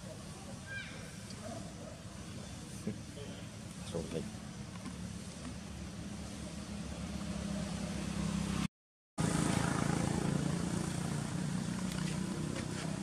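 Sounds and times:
vehicle engine humming: 0:01.3 - 0:13.0.

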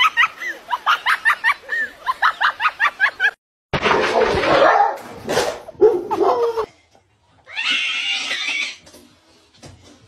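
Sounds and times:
dog barking and whining: 0:04.2 - 0:05.1.

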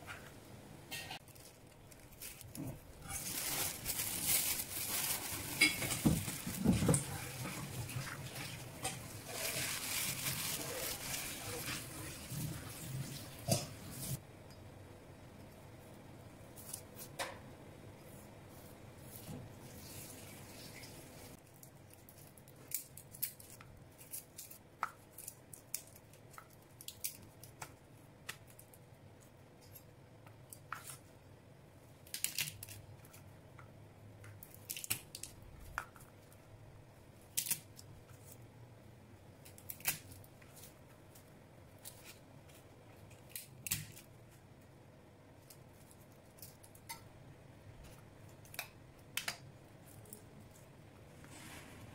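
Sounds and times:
garlic skins crackling: 0:01.0 - 0:12.9, 0:19.2 - 0:28.7, 0:32.0 - 0:33.3, 0:34.2 - 0:36.4, 0:37.2 - 0:38.4, 0:39.4 - 0:44.2.

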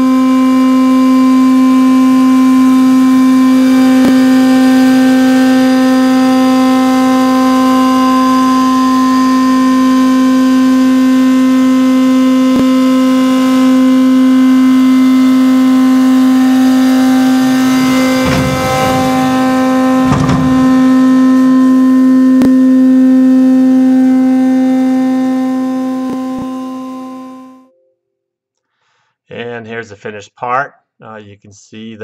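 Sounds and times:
milling machine cutting steel: 0:16.2 - 0:21.3.

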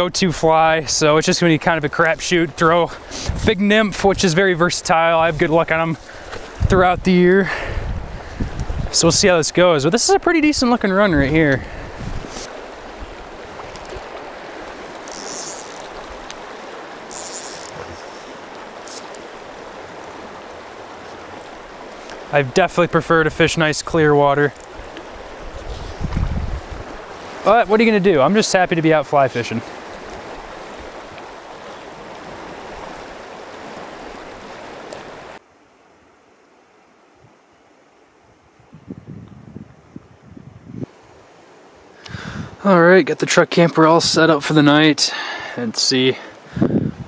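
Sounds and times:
fast-flowing river rushing: 0:00.0 - 0:35.4
faint hiss: 0:00.6 - 0:10.3, 0:11.4 - 0:12.6.

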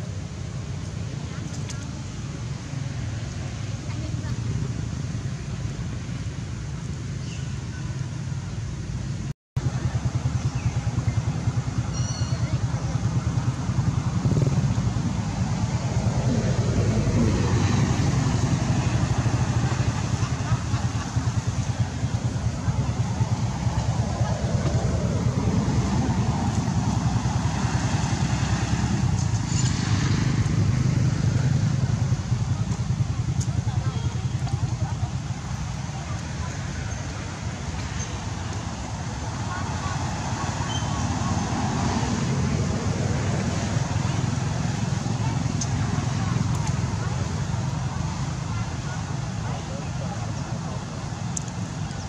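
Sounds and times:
steady low rumble: 0:08.3 - 0:52.0
engine running with pulsing: 0:09.6 - 0:40.4
faint high squeaks: 0:11.9 - 0:12.6.

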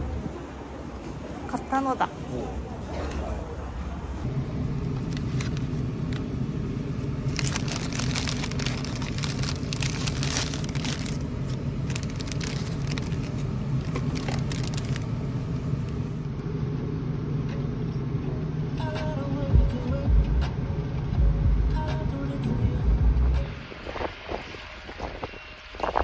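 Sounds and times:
low car hum: 0:00.0 - 0:26.0
paper wrapper crinkling: 0:05.0 - 0:06.2, 0:07.2 - 0:15.1.

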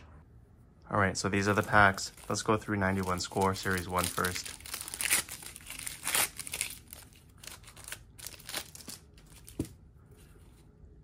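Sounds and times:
wrapper tearing and crinkling: 0:01.5 - 0:09.6.

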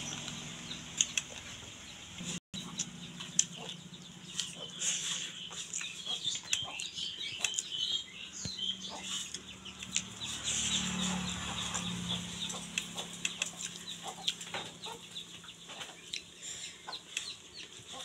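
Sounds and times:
chickens clucking: 0:00.0 - 0:18.0
small birds chirping: 0:00.0 - 0:18.0.

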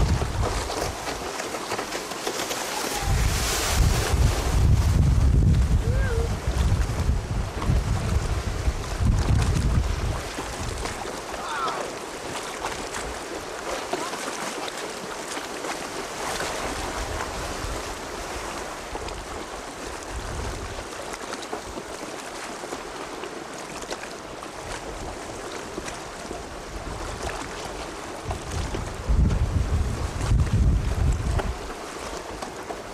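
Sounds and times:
wind buffeting microphone: 0:00.0 - 0:01.3, 0:02.8 - 0:11.2, 0:16.7 - 0:20.9, 0:26.5 - 0:32.4
choppy sea: 0:00.0 - 0:32.9.

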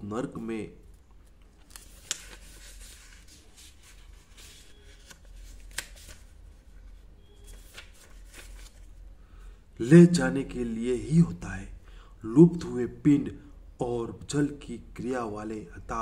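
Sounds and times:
paper pages rustling: 0:00.9 - 0:09.0.

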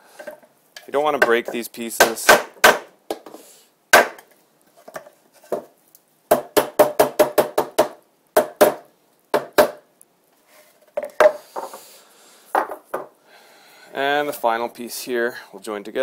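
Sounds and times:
hammer tapping wooden boards: 0:01.1 - 0:03.3, 0:03.9 - 0:04.3, 0:06.3 - 0:09.8.

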